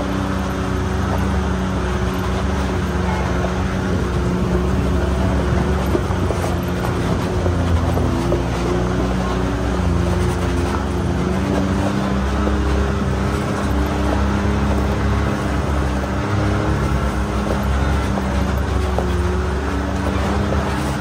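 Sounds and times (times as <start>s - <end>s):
engine running loud: 0.0s - 21.0s.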